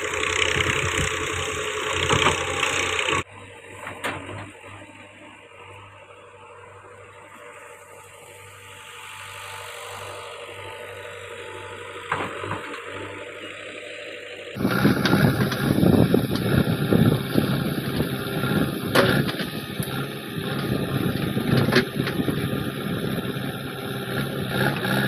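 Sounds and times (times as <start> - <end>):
diesel engine running: 0.0 - 25.0.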